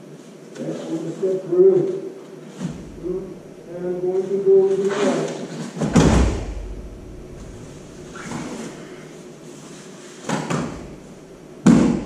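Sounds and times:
bodies thudding onto a mat: 5.8s - 6.7s, 10.2s - 11.0s, 11.6s - 12.0s
uniforms rustling on mat: 7.3s - 12.0s.

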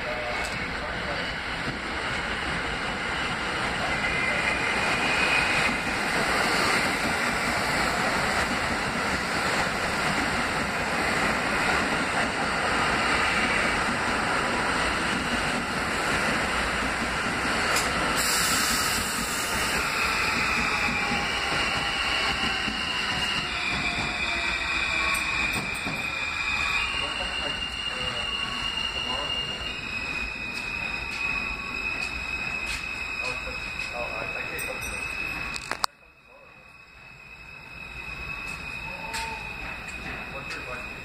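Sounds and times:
subway train wheels rumbling: 0.0s - 41.0s
hiss: 17.6s - 22.3s.

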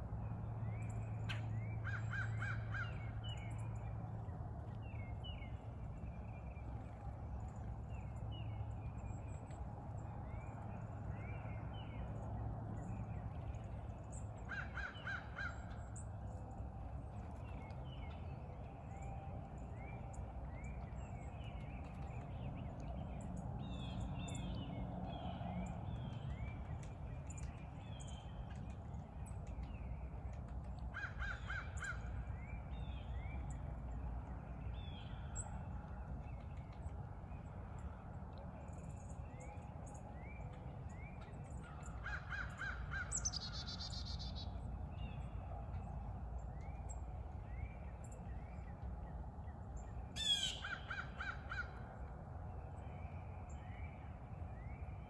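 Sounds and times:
small birds chirping: 0.6s - 52.1s
crows cawing: 14.5s - 15.6s, 31.0s - 32.0s.

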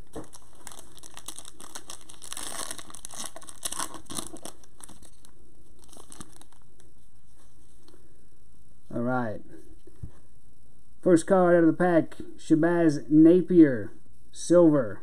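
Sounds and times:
card pack wrapper crinkling and tearing: 0.0s - 6.9s.

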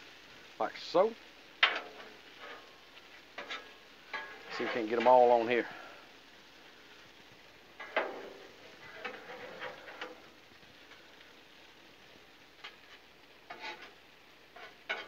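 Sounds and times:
metal spatula scraping griddle: 1.6s - 5.5s, 7.8s - 11.0s, 12.6s - 15.0s.

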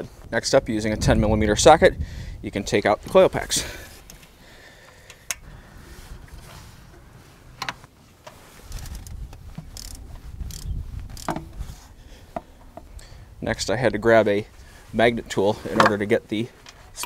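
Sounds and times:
rattling handling noise: 4.0s - 13.0s
ratchet metal clicks: 8.7s - 11.5s.

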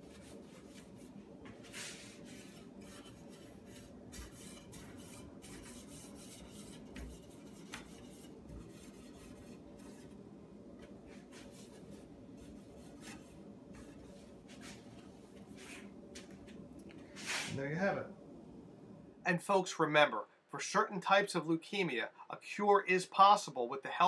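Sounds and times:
pad rubbing on wood: 0.0s - 10.2s, 10.8s - 16.3s.

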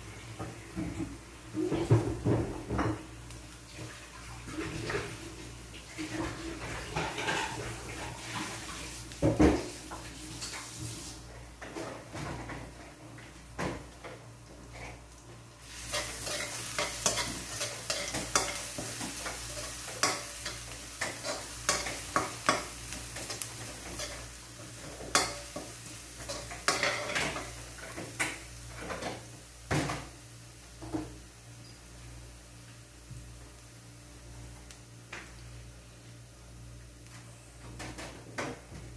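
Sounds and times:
garlic sizzling in hot oil: 3.1s - 11.3s, 14.8s - 37.1s
spatula scraping a wok: 15.7s - 28.0s.

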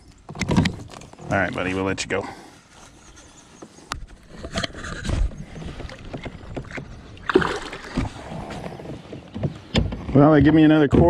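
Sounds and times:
fish splash: 7.2s - 8.1s.

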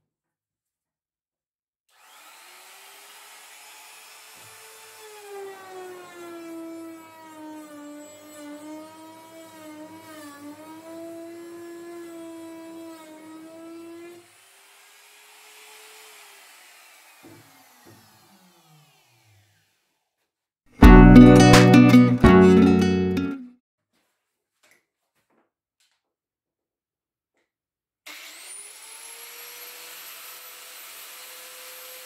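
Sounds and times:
trim router motor whine: 1.9s - 14.2s, 15.8s - 19.4s
router bit cutting wood: 1.9s - 20.0s, 28.1s - 32.0s.

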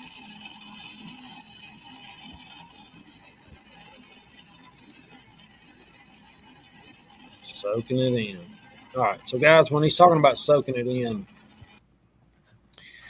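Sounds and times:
welding arc crackling: 0.0s - 11.8s.

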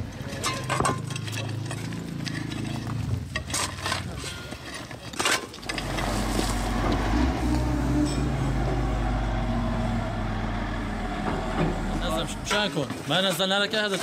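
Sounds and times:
wheel loader engine rumbling: 0.0s - 13.2s
hand tools striking rubble: 0.2s - 6.1s
vehicle engine running: 5.7s - 12.5s.

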